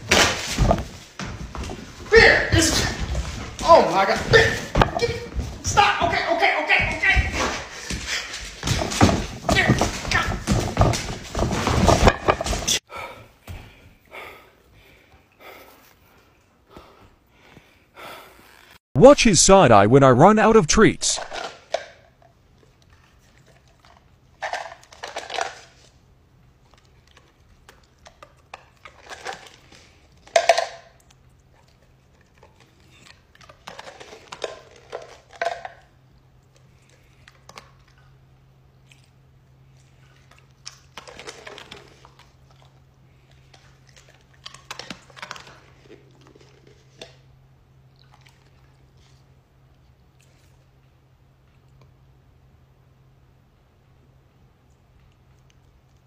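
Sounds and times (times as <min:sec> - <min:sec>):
dog crunching treats: 0:21.4 - 0:26.0, 0:26.6 - 0:38.0, 0:38.9 - 0:47.2.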